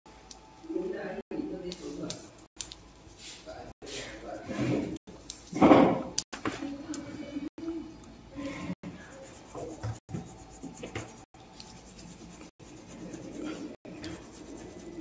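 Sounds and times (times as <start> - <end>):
colouring tool scratching on card: 8.8 - 15.0.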